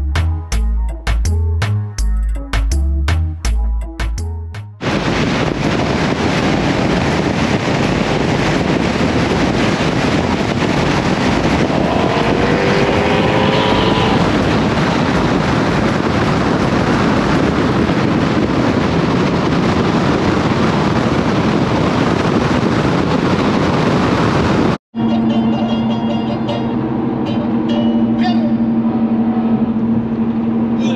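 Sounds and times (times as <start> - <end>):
wind rushing over microphone: 4.7 - 24.8
vehicle road noise: 4.8 - 30.9
car engine accelerating: 9.6 - 15.9.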